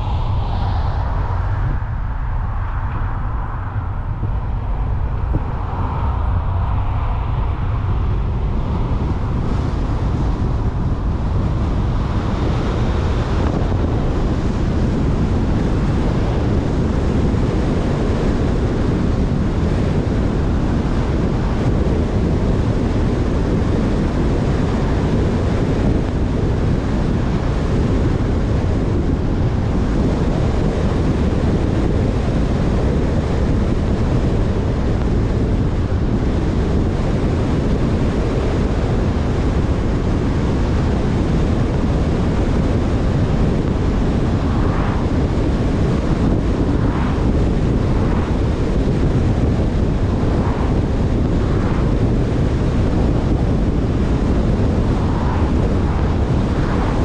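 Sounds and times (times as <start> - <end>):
passing car whoosh: 0.0 - 10.8
car wind and tyre noise: 0.0 - 57.0.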